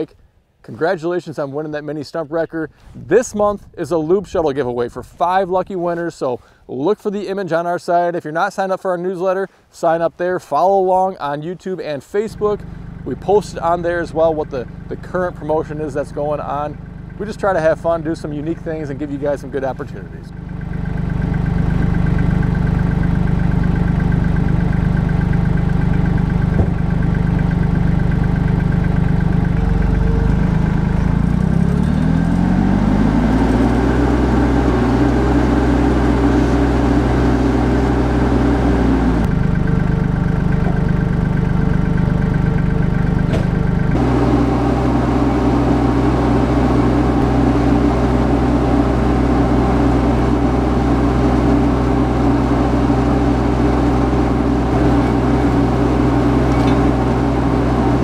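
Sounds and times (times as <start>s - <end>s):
tractor engine idling and revving: 12.1s - 58.0s.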